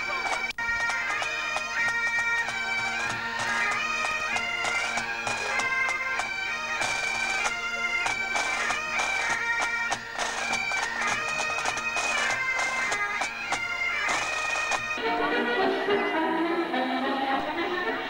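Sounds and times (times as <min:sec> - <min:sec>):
bagpipes playing: 0:00.0 - 0:18.0.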